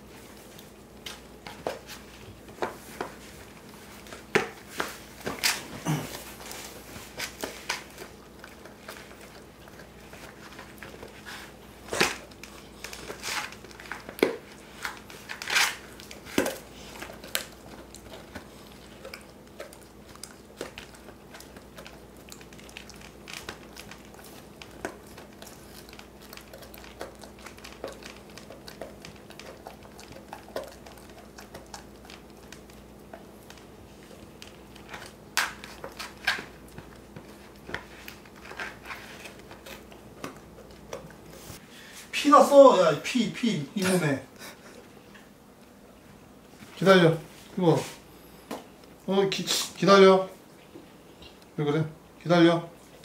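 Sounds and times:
dog crunching a chew: 0.1s - 41.5s.

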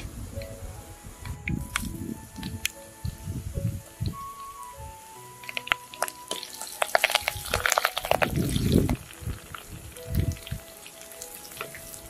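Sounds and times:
garlic crackling in hot oil: 4.0s - 12.0s.

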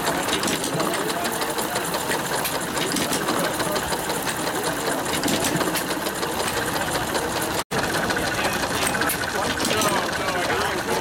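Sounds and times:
small engines clattering: 0.0s - 11.0s.

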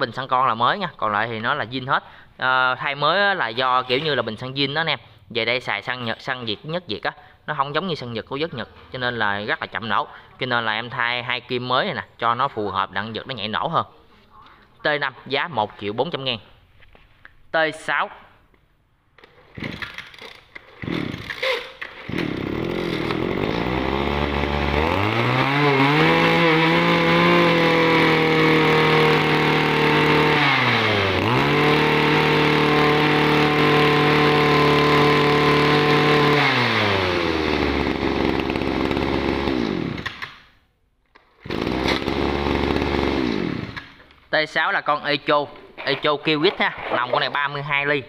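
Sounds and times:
two-stroke brush cutter engine revving: 19.6s - 40.3s, 41.4s - 44.0s.

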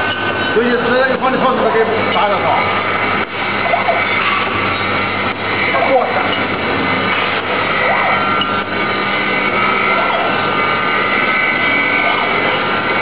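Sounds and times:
high steady tones: 0.0s - 13.0s
packaging machine hum: 0.0s - 13.0s.

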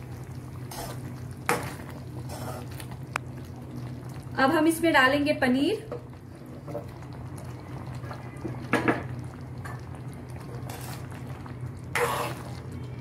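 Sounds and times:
thick gravy bubbling in a pot: 0.0s - 13.0s
metal spoon scraping and stirring: 10.6s - 11.1s, 11.9s - 12.6s.

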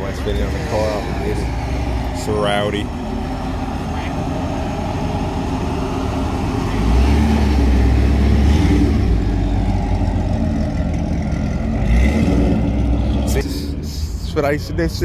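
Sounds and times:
car engine rumbling: 0.0s - 15.0s.

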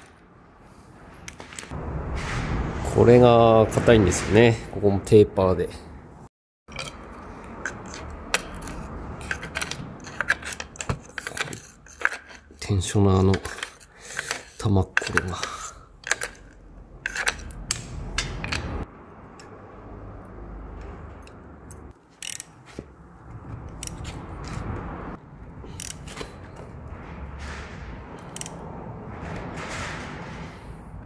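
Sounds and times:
ratchet wrench clicking: 21.2s - 22.6s, 25.7s - 26.2s, 28.3s - 28.6s.

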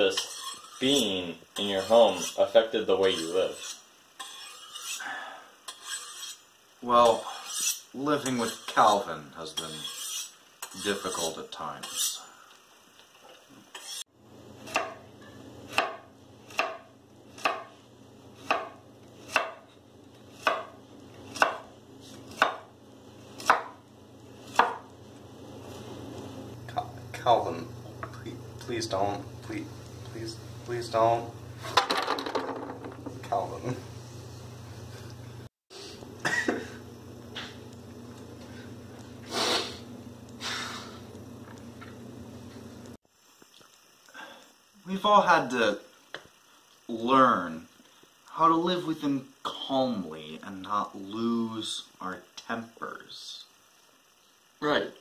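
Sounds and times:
low steady hum: 14.2s - 31.8s, 32.7s - 54.4s
knife chopping on wooden board: 14.7s - 15.0s, 15.7s - 17.7s, 18.4s - 19.6s, 20.4s - 22.7s, 23.4s - 23.8s, 24.5s - 24.8s.

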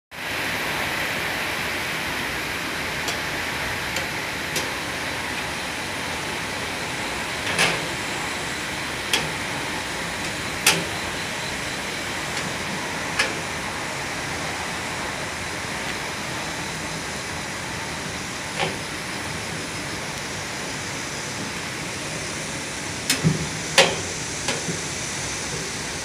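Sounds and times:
machine water rushing: 0.2s - 26.0s.

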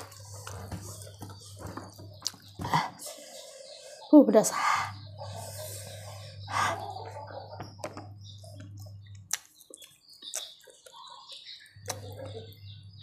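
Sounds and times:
wet chewing and lip smacks: 2.2s - 2.6s, 8.6s - 11.1s, 11.7s - 12.5s
person breathing: 2.8s - 7.0s.

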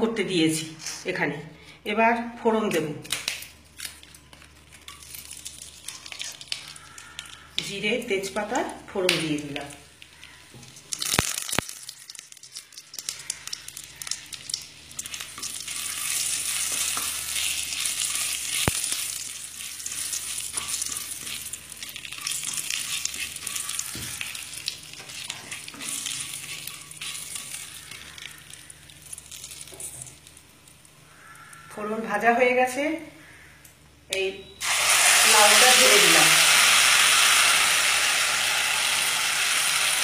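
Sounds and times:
spices sizzling in hot oil: 4.4s - 31.2s, 34.6s - 40.0s
spatula stirring in pan: 10.1s - 30.2s.

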